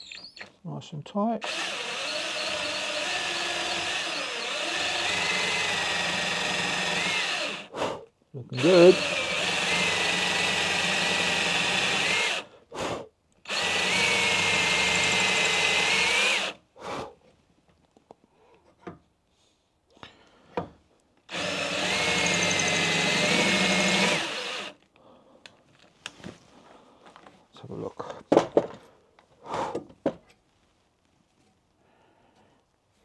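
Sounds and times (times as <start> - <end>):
cordless drill whining: 1.4 - 7.7, 8.6 - 12.5, 13.5 - 16.6, 21.3 - 24.8.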